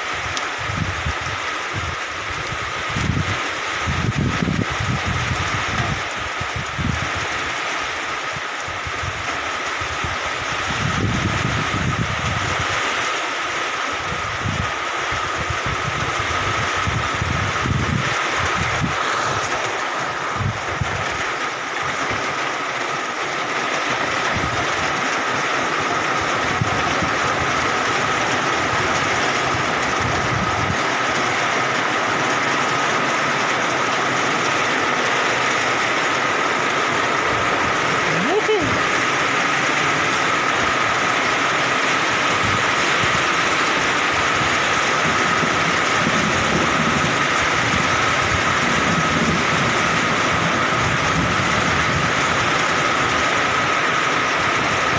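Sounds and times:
heavy rain on foliage: 0.0 - 54.9
wind buffeting microphone: 0.1 - 13.0, 14.0 - 22.4, 26.1 - 31.7, 37.2 - 54.9
steady high tone: 38.0 - 38.9.

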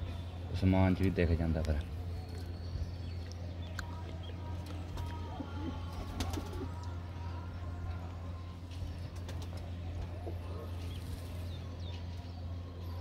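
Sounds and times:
steady low hum: 0.0 - 13.0
pigeons cooing: 4.9 - 6.9.

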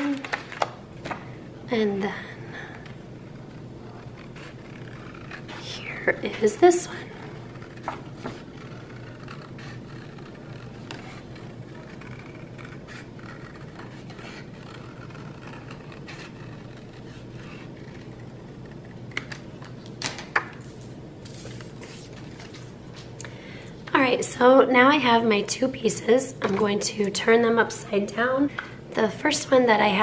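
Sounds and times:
steady low hum: 0.0 - 30.0
paper rustling: 20.6 - 23.2.

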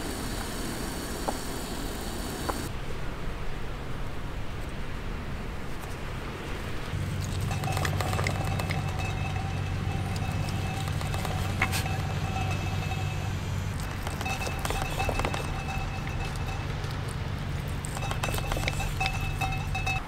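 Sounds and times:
low vehicle rumble: 6.2 - 20.0
thin high tone: 7.0 - 20.0.

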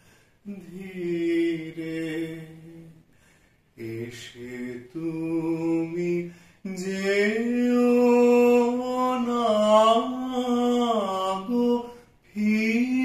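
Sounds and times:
singer breathing: 0.0 - 0.5, 3.0 - 3.8, 6.2 - 6.7, 11.8 - 12.3
man singing unaccompanied: 0.4 - 3.2, 3.8 - 13.0.

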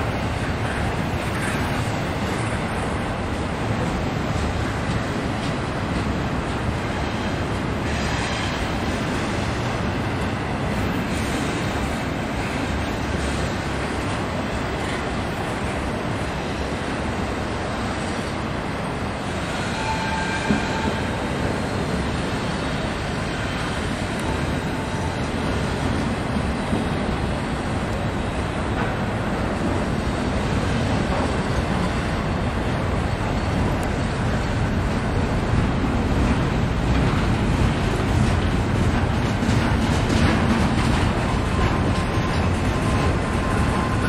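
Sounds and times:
train wheels rumbling on rail: 0.0 - 44.0
faint high squeal: 19.4 - 21.3.

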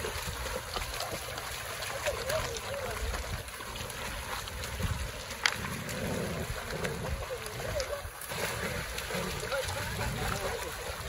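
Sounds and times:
dogs splashing through water: 0.0 - 11.0
stream running over stones: 0.0 - 11.0
wind rumbling on microphone: 4.3 - 11.0.

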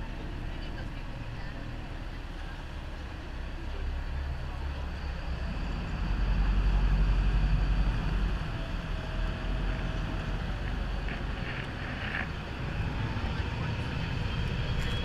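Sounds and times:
boat engine rumble: 0.0 - 15.0.

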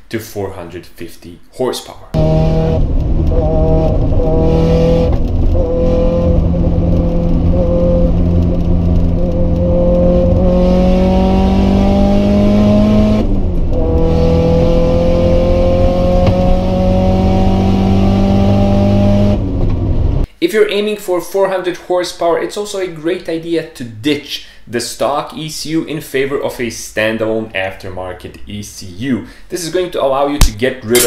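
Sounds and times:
car engine revving under load: 2.2 - 20.3.

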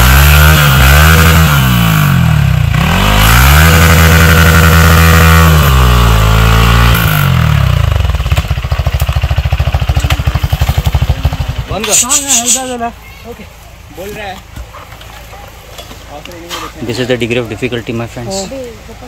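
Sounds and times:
motorcycle engine revving: 0.0 - 12.9.

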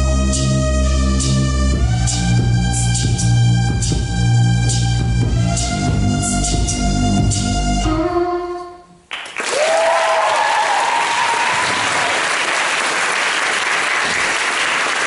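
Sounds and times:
backing music: 0.0 - 9.1
audience applause: 9.1 - 15.0
audience cheering: 9.2 - 15.0.

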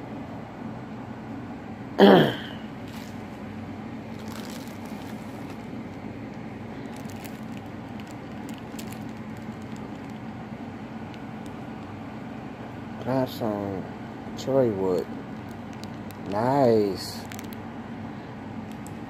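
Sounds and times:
steady low hum: 0.0 - 19.0
small crackles: 2.8 - 3.4, 4.1 - 12.0, 15.2 - 17.7, 18.6 - 19.0
plastic bag crinkling: 2.8 - 11.9, 15.2 - 17.6, 18.6 - 19.0.

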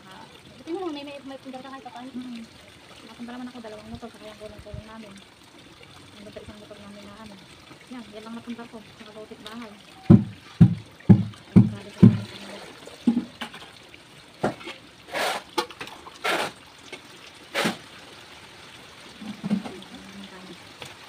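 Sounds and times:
faint water trickle: 0.0 - 21.0
water poured into bucket: 2.1 - 21.0
sharp water splashes: 7.8 - 21.0
low thuds: 10.0 - 12.3.

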